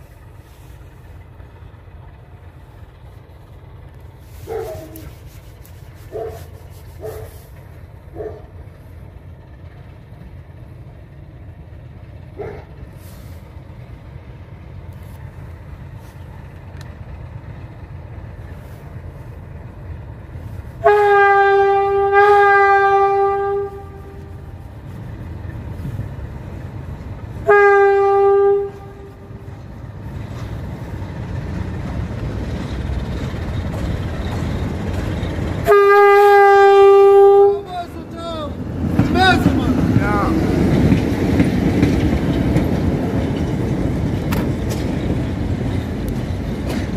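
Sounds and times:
diesel locomotive engine running: 0:00.0 - 0:46.9
locomotive horn blasts: 0:20.7 - 0:24.7, 0:27.3 - 0:29.5, 0:35.6 - 0:39.8.

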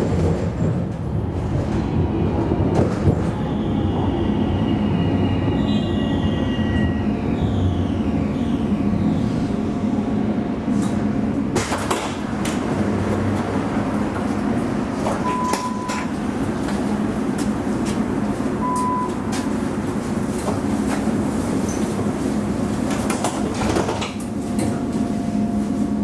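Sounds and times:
tram equipment humming: 0:00.0 - 0:26.0
short high beeps: 0:15.2 - 0:16.1.

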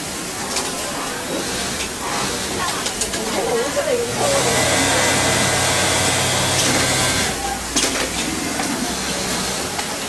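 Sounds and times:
elevator motor whirring: 0:04.2 - 0:07.4.

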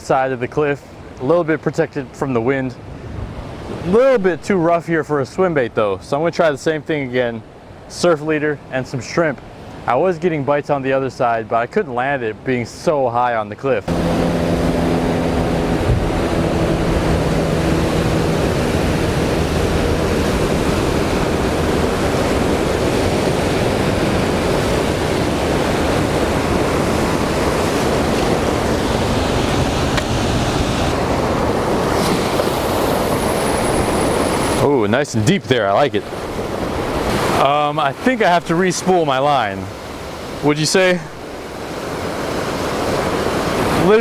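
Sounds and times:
waves breaking over rocks: 0:14.3 - 0:44.0.

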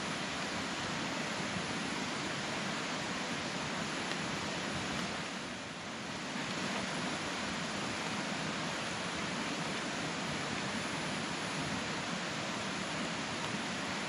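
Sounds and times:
outdoor rushing hiss: 0:00.0 - 0:14.0.

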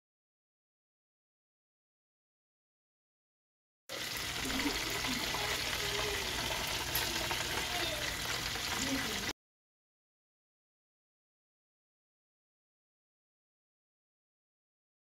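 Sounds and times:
oil sizzling in a frying pan: 0:03.9 - 0:09.3.

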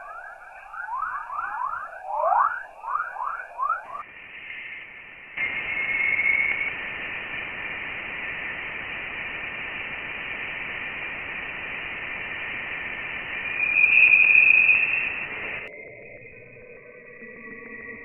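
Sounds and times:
high whistling tone: 0:00.0 - 0:04.0, 0:05.4 - 0:06.8, 0:13.2 - 0:18.0
static-like hiss: 0:04.0 - 0:15.7.

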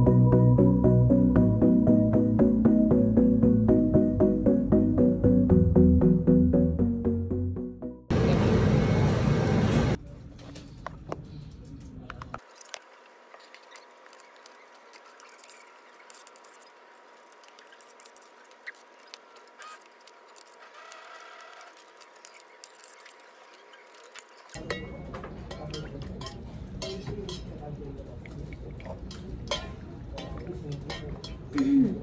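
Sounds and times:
metal spoon in steel lunch box: 0:29.1 - 0:31.6.

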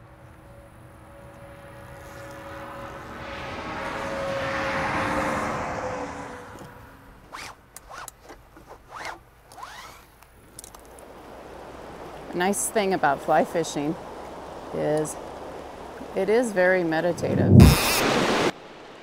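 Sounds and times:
zip-like rasp: 0:07.3 - 0:10.1, 0:17.6 - 0:18.1.

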